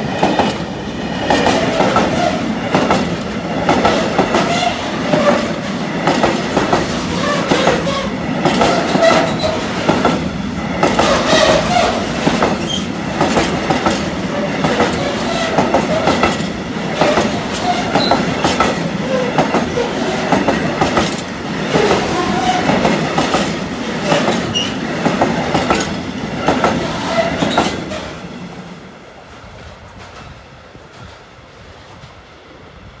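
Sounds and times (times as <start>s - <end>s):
freight train rumbling past: 0.0s - 33.0s
wheel squeals: 17.0s - 19.6s, 24.1s - 24.9s.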